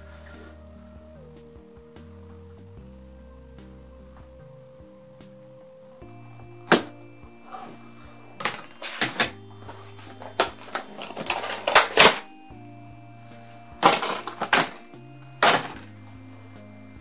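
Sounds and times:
quiet instrumental music: 0.0s - 17.0s
plastic packaging clattering and rustling: 10.1s - 12.3s, 13.8s - 14.8s, 15.4s - 15.8s.

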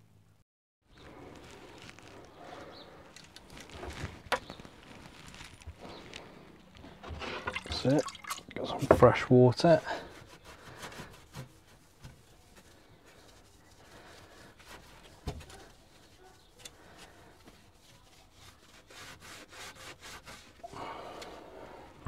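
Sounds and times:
sponge rubbing on tiles: 9.8s - 20.9s.

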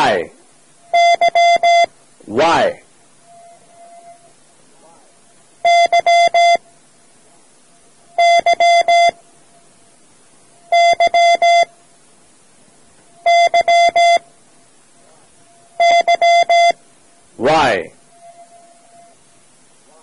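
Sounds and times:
morse code beeps: 0.8s - 2.0s, 3.2s - 4.3s, 5.6s - 6.6s, 8.1s - 9.2s, 10.6s - 11.7s, 13.2s - 14.3s, 15.5s - 16.8s, 17.6s - 19.2s.

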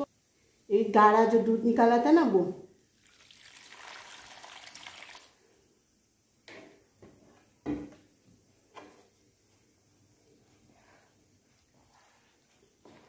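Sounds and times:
thick liquid pouring: 2.9s - 5.4s.

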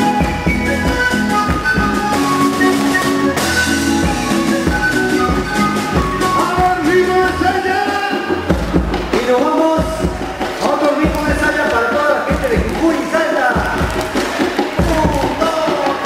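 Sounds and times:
strummed small guitar: 0.0s - 8.4s
panpipe melody: 0.0s - 9.0s
electric bass: 0.0s - 9.2s
steady beat: 0.0s - 16.0s.

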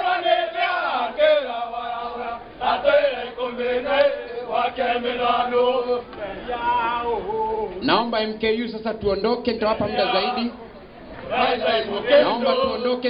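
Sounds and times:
group chanting a song: 0.0s - 6.8s, 11.2s - 13.0s.

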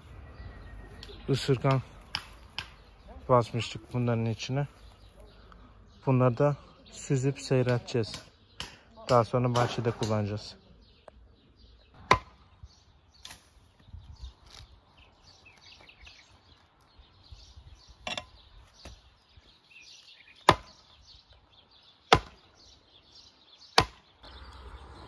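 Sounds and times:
birds chirping: 0.0s - 25.0s
digging tool chopping into ground: 20.4s - 20.8s, 22.1s - 22.5s, 23.7s - 24.1s.

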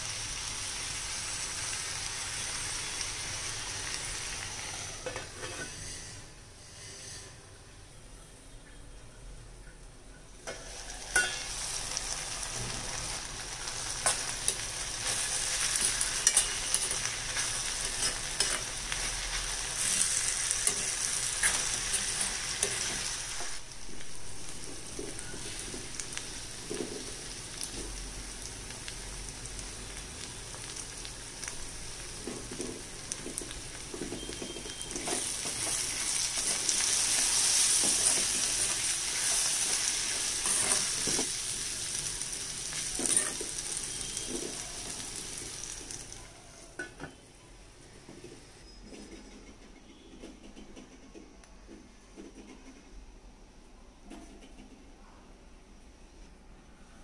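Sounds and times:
beans sizzling in a pan: 0.0s - 7.3s, 10.4s - 46.8s
spatula scraping a pan: 5.0s - 7.4s, 37.6s - 41.3s.

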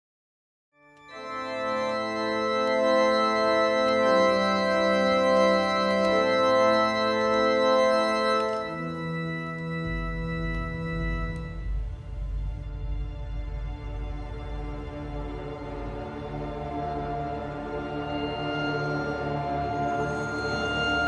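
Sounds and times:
sustained organ chords: 0.8s - 21.0s
deep low organ note: 6.5s - 13.8s.

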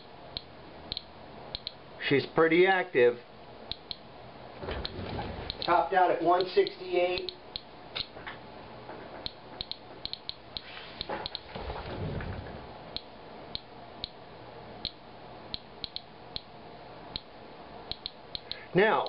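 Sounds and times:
geiger counter clicking: 0.3s - 1.8s, 3.7s - 4.0s, 4.8s - 5.7s, 9.2s - 10.7s, 12.9s - 14.2s, 14.8s - 16.5s, 17.1s - 17.3s, 17.9s - 19.0s.

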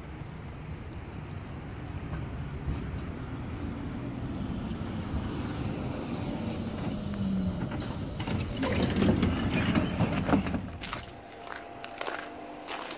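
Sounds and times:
tram rumbling on rails: 0.0s - 12.9s
high-pitched wheel squeals: 6.9s - 11.3s.

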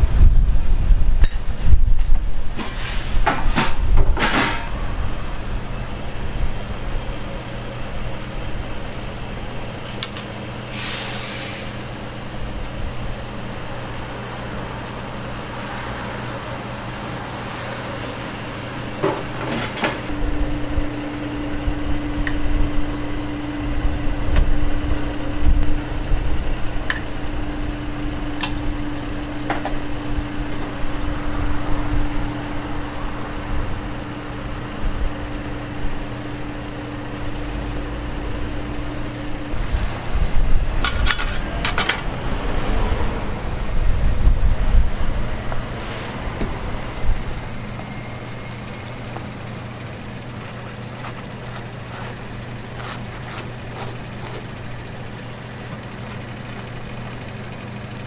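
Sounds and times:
low mechanical hum: 0.0s - 58.0s
metal utensils clattering: 2.6s - 4.7s.

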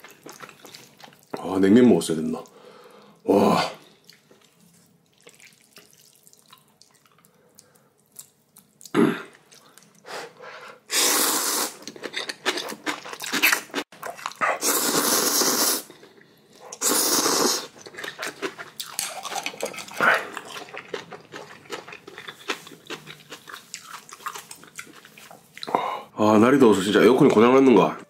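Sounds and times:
chewing: 0.0s - 1.4s, 3.8s - 10.1s, 11.8s - 15.1s, 15.9s - 25.8s
person slurping noodles: 10.9s - 11.9s, 14.3s - 16.0s, 16.6s - 18.4s.

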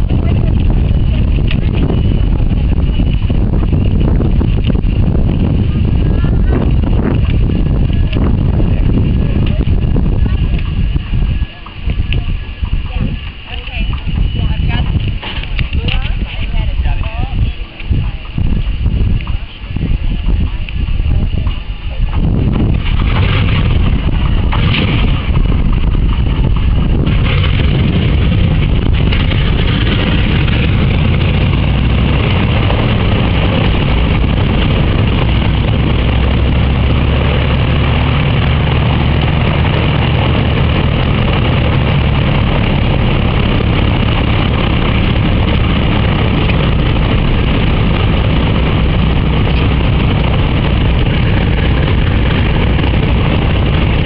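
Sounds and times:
radial piston engines starting up: 0.0s - 54.0s.

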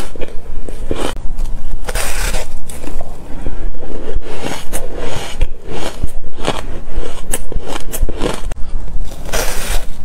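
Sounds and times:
crunching shaved ice: 4.0s - 10.0s.

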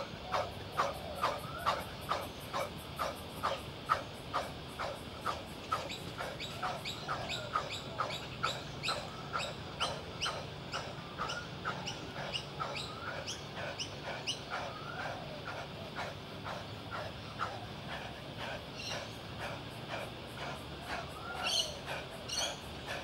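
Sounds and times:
man breathing hard and fast: 12.1s - 23.0s.

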